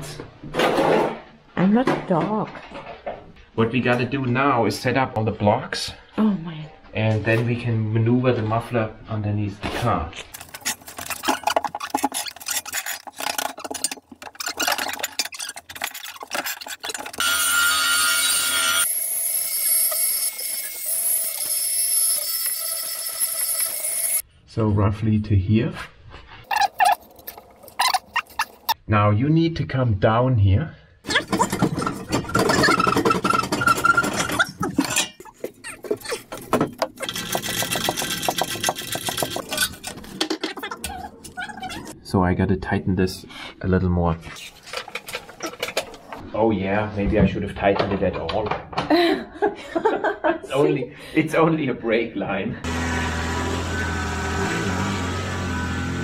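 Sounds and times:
metal clanking and scraping: 0:10.2 - 0:17.3, 0:31.1 - 0:41.9, 0:44.4 - 0:46.2.

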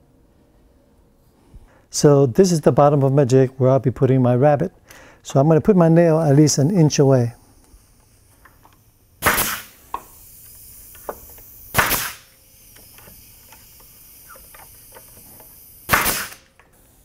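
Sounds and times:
nail gun firing: 0:09.2 - 0:10.0, 0:11.1 - 0:13.0, 0:15.8 - 0:16.6.

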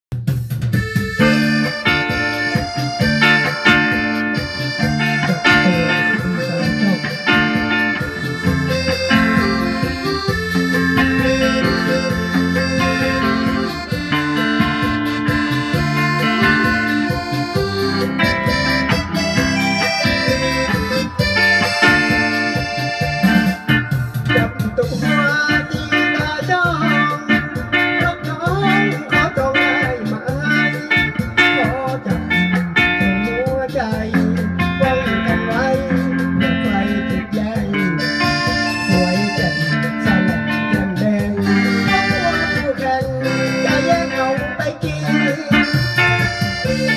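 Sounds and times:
live band playing: 0:00.1 - 0:46.9
electric guitar: 0:00.4 - 0:46.9
keyboard sustained chords: 0:01.1 - 0:25.0
man singing into microphone: 0:05.2 - 0:07.6, 0:24.3 - 0:46.9.

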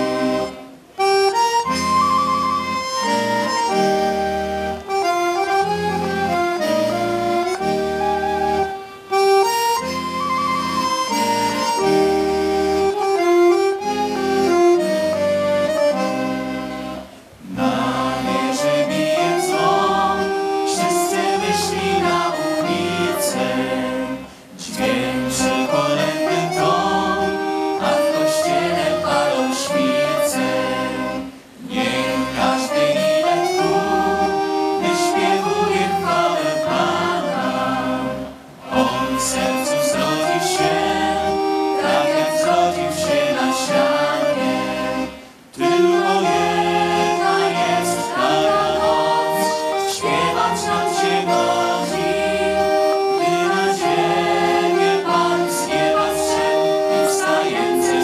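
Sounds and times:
girls choir singing: 0:00.0 - 0:00.8, 0:17.4 - 0:58.0
violin accompaniment: 0:00.0 - 0:58.0.

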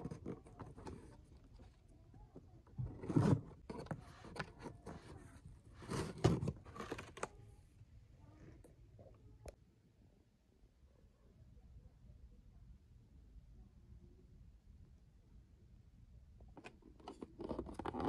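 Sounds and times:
cardboard scraping and rustling: 0:02.8 - 0:07.3.

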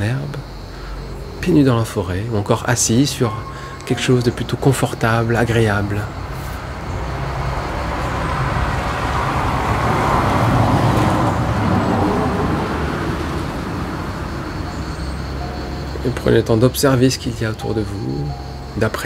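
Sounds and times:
vehicle passing by: 0:03.7 - 0:16.0.

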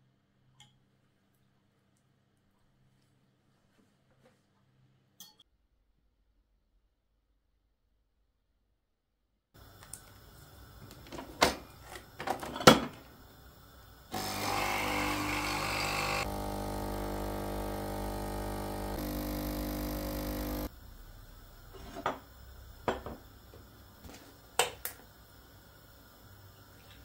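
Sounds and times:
coffee machine pump running: 0:14.0 - 0:20.7.

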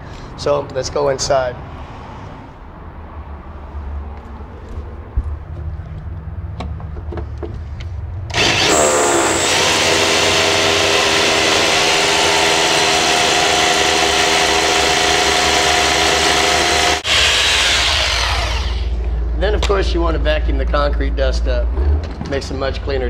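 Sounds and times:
hammer drill boring into concrete: 0:08.3 - 0:19.0.

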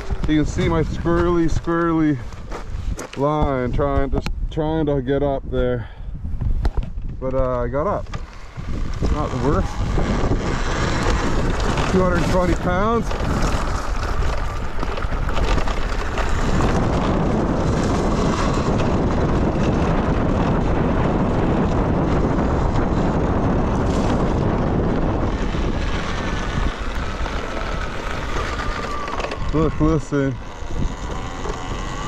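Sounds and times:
wind rushing over microphone: 0:00.0 - 0:32.0
faint thin whine: 0:07.2 - 0:19.7, 0:23.8 - 0:32.0.

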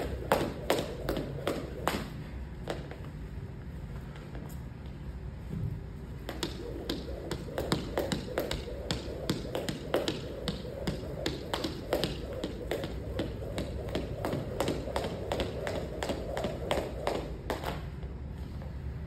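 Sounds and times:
jump rope slapping a mat: 0:00.0 - 0:03.0, 0:06.2 - 0:17.9.

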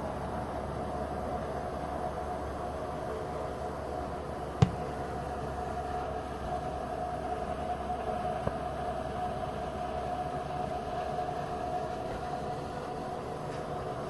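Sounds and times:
outdoor hiss and hum: 0:00.0 - 0:14.0
distant road traffic: 0:00.9 - 0:14.0
sharp thump: 0:04.6 - 0:04.9.

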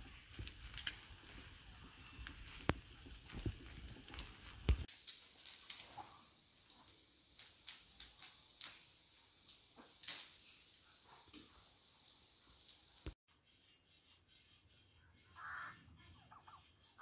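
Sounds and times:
charcoal fire crackling: 0:00.0 - 0:13.2
faint steady hiss: 0:00.0 - 0:13.2
sharp pops and ticks: 0:00.3 - 0:01.5, 0:02.2 - 0:13.2.

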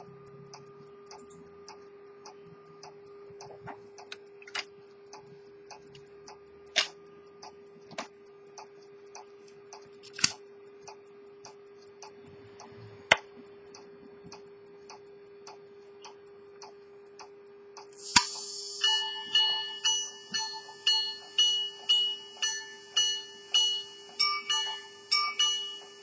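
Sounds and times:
sharp clicks: 0:00.0 - 0:18.8
faint steady hum: 0:00.0 - 0:26.0
watch ticking: 0:00.0 - 0:26.0
watch hammers striking gongs: 0:18.6 - 0:26.0.

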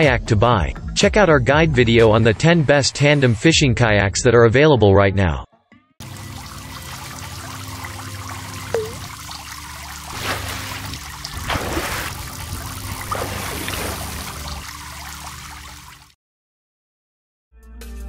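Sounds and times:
water trickling and pouring: 0:06.0 - 0:16.2.

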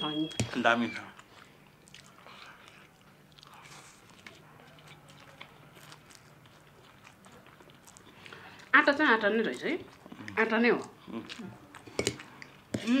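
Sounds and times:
noodles being slurped and chewed: 0:01.1 - 0:08.8, 0:09.6 - 0:13.0.

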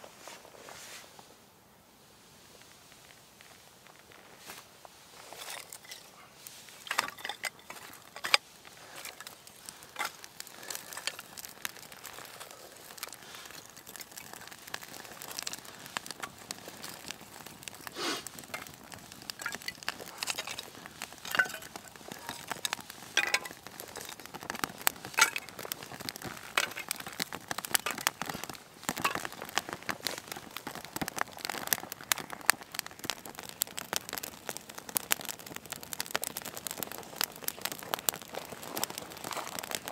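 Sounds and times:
kindling fire crackling and popping: 0:00.2 - 0:39.9.

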